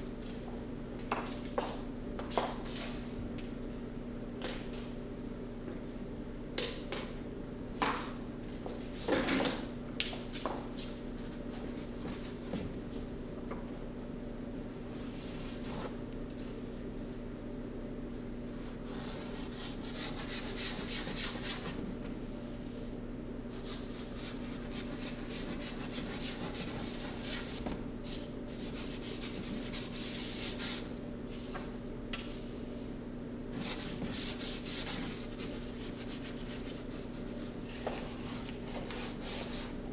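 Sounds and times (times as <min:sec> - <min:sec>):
steady low hum: 0:00.0 - 0:39.9
paintbrush scrubbing on board: 0:23.6 - 0:30.9, 0:33.6 - 0:39.7.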